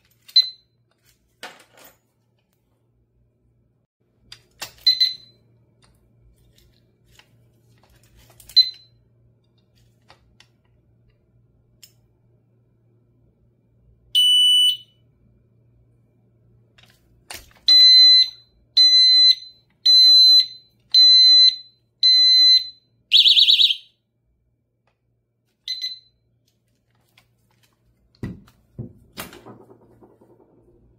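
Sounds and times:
loud alarm beeps: 0:14.2 - 0:15.0, 0:17.7 - 0:23.9.

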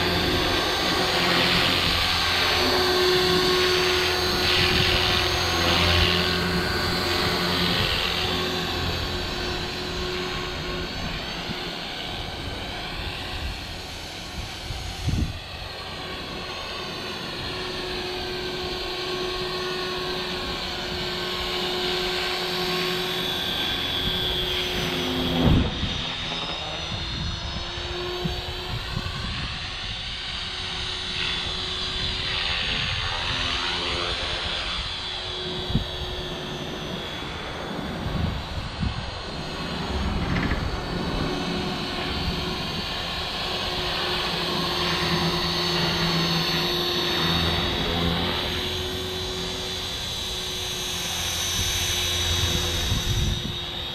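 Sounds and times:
rc helicopter whine: 0:00.0 - 0:53.9.

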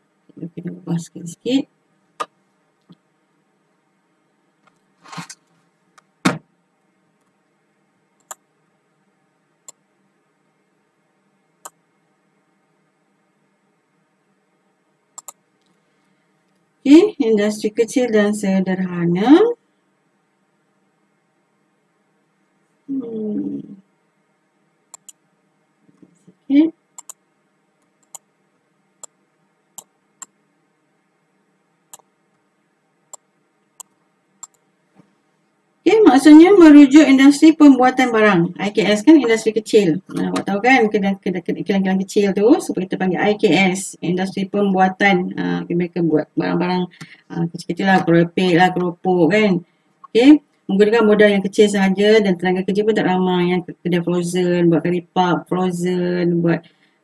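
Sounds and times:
loud thump: 0:06.2 - 0:06.5
computer mouse clicks: 0:08.2 - 0:08.4, 0:15.2 - 0:15.8, 0:24.9 - 0:25.2, 0:27.0 - 0:27.2, 0:27.8 - 0:28.3, 0:33.1 - 0:34.7.

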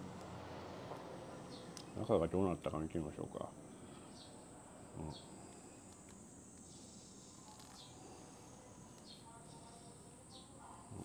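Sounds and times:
high-pitched hiss: 0:04.7 - 0:10.2.

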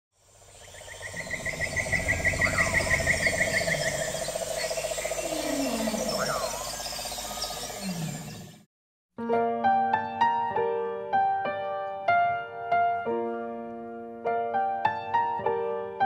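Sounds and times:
high fast insect chirping: 0:00.2 - 0:08.6
rapid pulsing frog trill: 0:00.2 - 0:08.6
rising and falling calls: 0:00.6 - 0:08.6.

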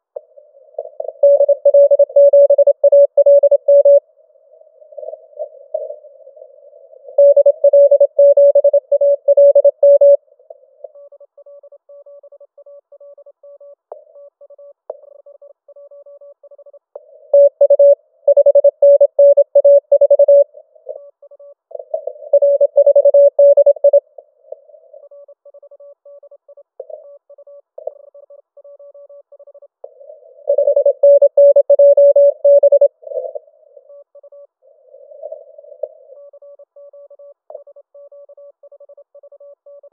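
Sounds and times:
morse code tone: 0:00.8 - 0:04.0, 0:07.2 - 0:10.2, 0:17.3 - 0:20.5, 0:21.8 - 0:24.0, 0:29.9 - 0:33.4.

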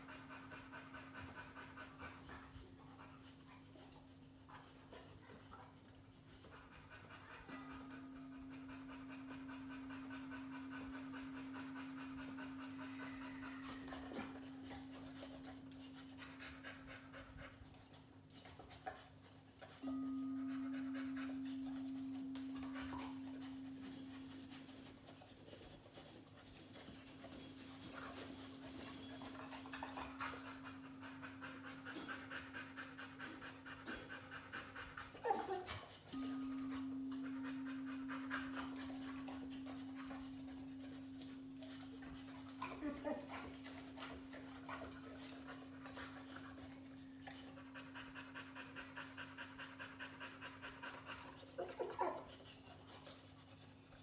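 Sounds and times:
crystal singing bowl ringing: 0:19.8 - 0:24.3, 0:36.1 - 0:40.0.

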